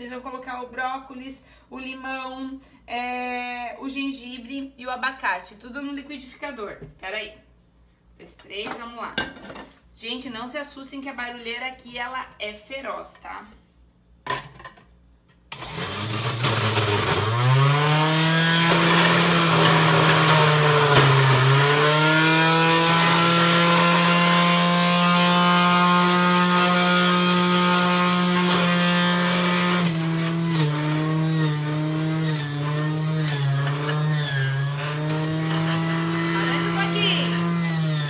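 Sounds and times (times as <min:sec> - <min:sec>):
juicer motor whining: 0:15.5 - 0:38.0.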